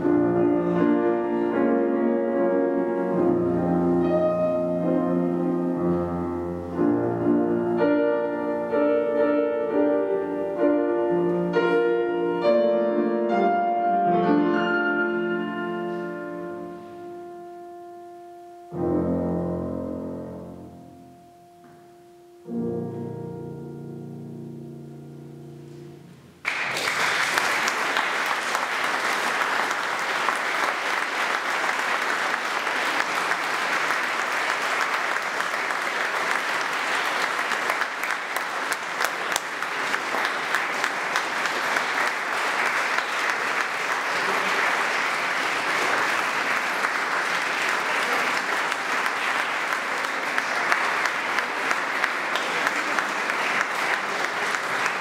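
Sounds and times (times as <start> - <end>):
grand piano notes: 0.0 - 26.4
audience applause in church: 26.4 - 55.0.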